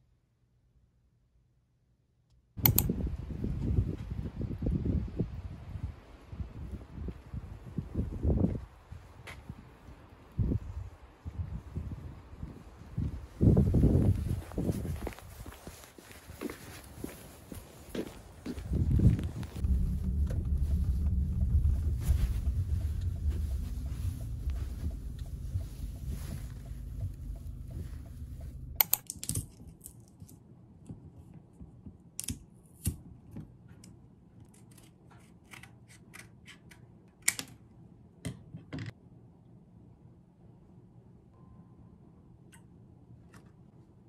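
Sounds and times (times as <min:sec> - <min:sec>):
car cabin rumble: 0:18.7 - 0:28.8.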